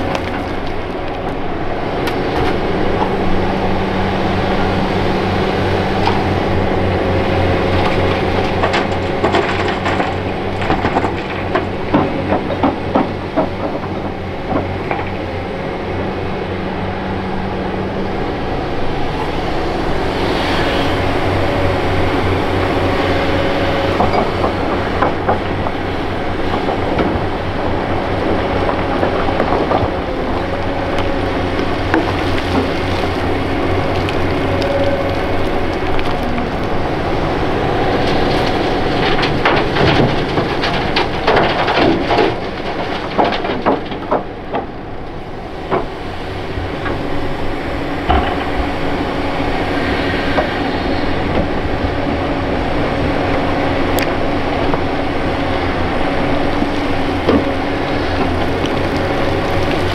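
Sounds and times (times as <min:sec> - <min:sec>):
excavator diesel engine: 0:00.0 - 0:59.9
knocks and clatter: 0:07.7 - 0:15.3, 0:23.9 - 0:31.2, 0:37.8 - 0:44.8, 0:48.0 - 0:49.1
hydraulic whine: 0:44.7 - 0:59.9.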